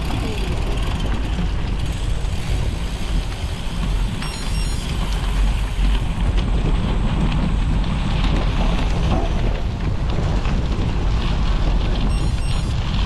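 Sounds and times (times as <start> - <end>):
deep rumble: 0.0 - 13.0
faint high-pitched tones: 4.2 - 5.0, 12.1 - 12.8
wind buffeting microphone: 4.8 - 13.0.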